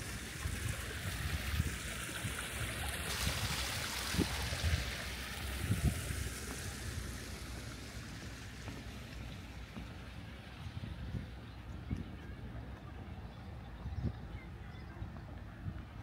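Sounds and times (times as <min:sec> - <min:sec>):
water running: 0:00.0 - 0:11.4.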